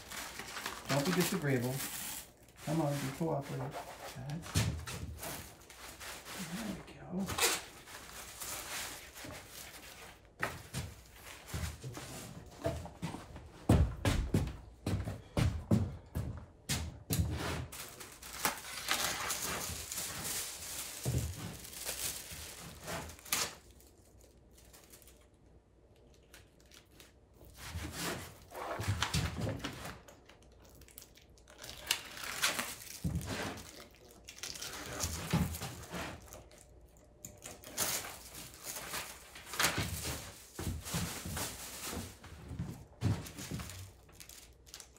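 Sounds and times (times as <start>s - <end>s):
mylar sheet crinkling: 0.0s - 12.5s, 17.6s - 44.9s
footsteps: 10.4s - 17.6s.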